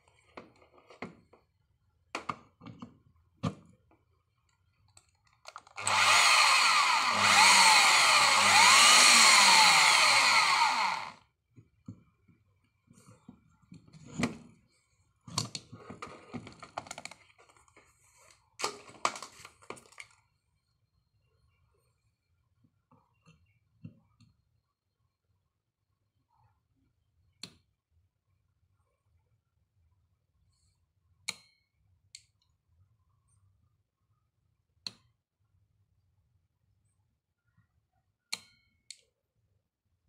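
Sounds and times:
plug and cords handled: 4.9 - 6.1, 15.3 - 17.8
electric drill running: 5.8 - 11.2.

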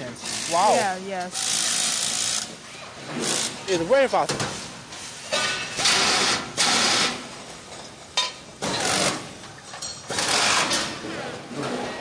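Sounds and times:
pneumatic tool driving bolts: 1.4 - 3.7, 5.3 - 7.3, 8.6 - 9.4, 10.1 - 11.1.

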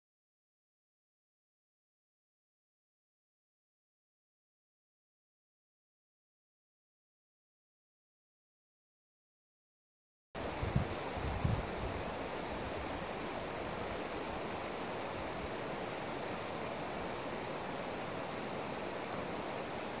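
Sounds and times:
steady outdoor hiss: 10.4 - 20.0.

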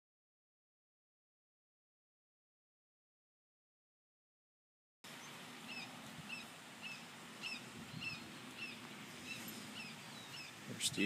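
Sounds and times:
bird chirping: 5.1 - 11.0.

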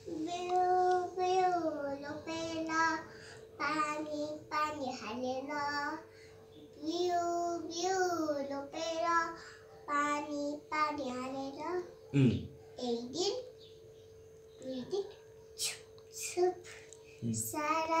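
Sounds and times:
girl singing: 0.0 - 6.0, 6.8 - 11.8.

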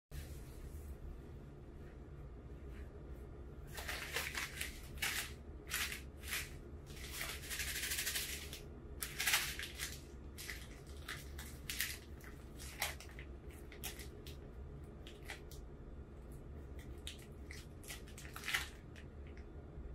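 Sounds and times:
wrapper crinkling: 3.7 - 14.4, 16.8 - 19.0.

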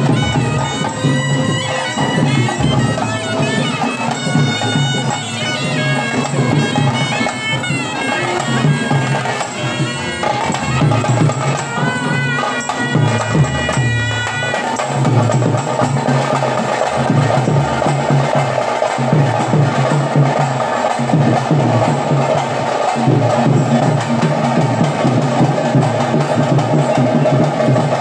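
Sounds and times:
reedy wind instrument melody: 0.0 - 19.4
drums beating driving rhythm: 0.0 - 28.0.

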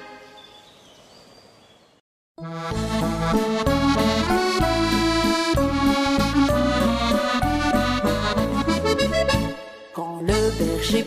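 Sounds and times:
lively accordion music: 2.4 - 10.9.

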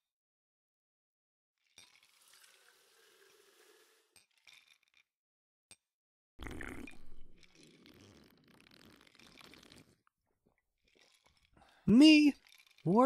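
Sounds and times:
drink poured into glass mug: 1.7 - 5.0, 6.4 - 10.0, 10.9 - 12.9
rough gulping: 6.4 - 10.1.

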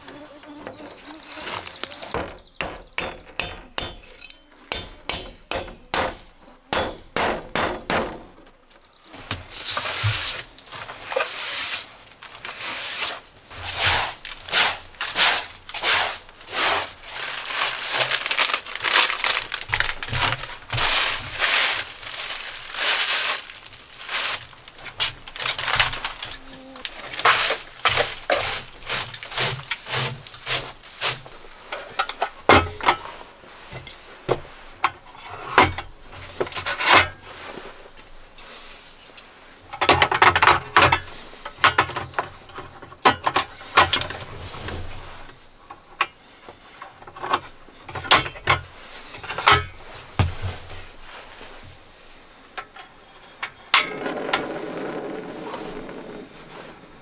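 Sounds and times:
broom brushing wooden floor: 9.5 - 24.8, 26.9 - 31.4
plastic packets crinkling: 14.1 - 31.2.

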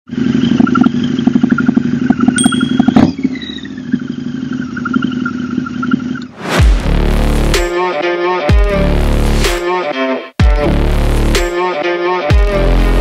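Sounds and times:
motorcycle engine pulling away: 0.1 - 6.2.

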